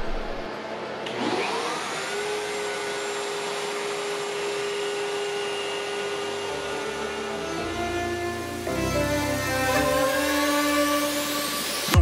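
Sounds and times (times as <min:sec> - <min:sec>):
router whining: 0:00.0 - 0:12.0
shop vacuum running: 0:00.0 - 0:12.0.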